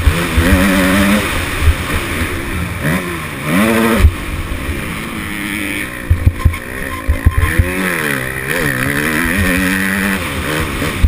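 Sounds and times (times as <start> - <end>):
motocross bike engine revving: 0.0 - 11.0
low thumps: 6.0 - 7.9.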